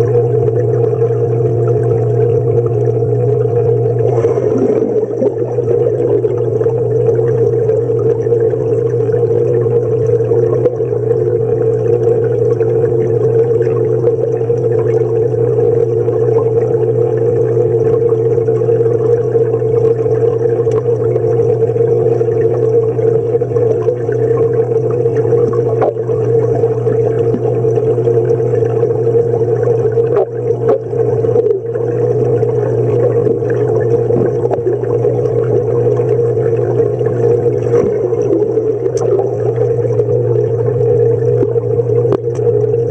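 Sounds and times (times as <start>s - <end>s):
underwater low hum: 0.0s - 42.9s
higher drone: 4.0s - 7.0s
faint ticks: 20.6s - 21.3s, 41.4s - 42.8s.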